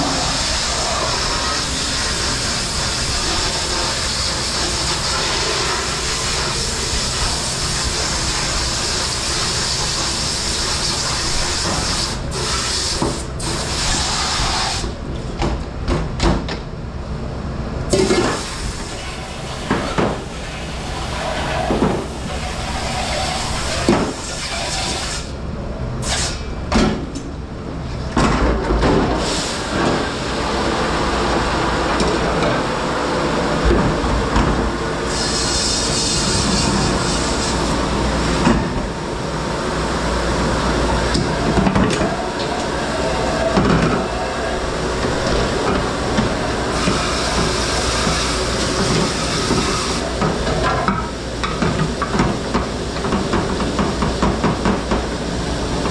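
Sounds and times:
spraying water rushing: 0.0 - 14.8.

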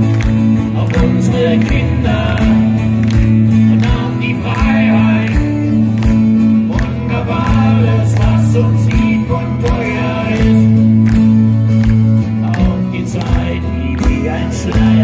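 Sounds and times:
acoustic guitars strumming: 0.0 - 15.0
bass notes: 0.0 - 15.0.

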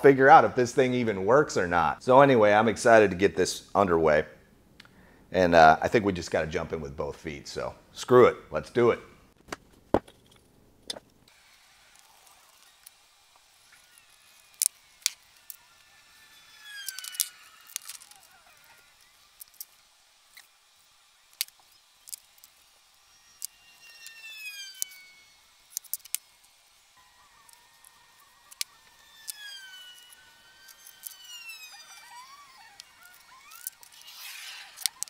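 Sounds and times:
scriber squeaking on steel: 16.4 - 19.1, 27.1 - 35.0.

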